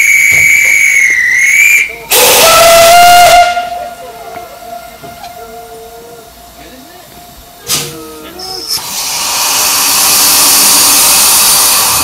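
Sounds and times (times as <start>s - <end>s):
steam locomotive whistle: 0.0s - 6.4s
loud hiss of steam: 0.0s - 12.0s.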